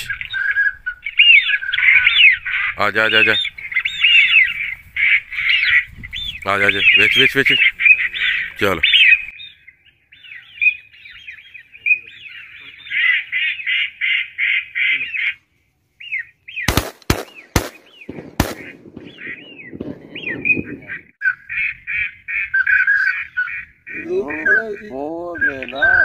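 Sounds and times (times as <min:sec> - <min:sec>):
shotgun shots: 0:16.7 - 0:21.0.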